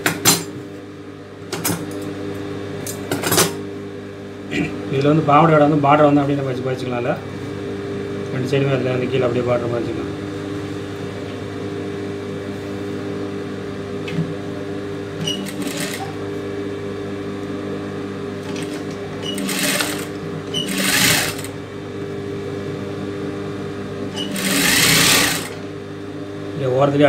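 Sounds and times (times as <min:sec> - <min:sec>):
sewing machine running: 0:15.2 - 0:16.2, 0:18.4 - 0:21.6, 0:24.1 - 0:25.7.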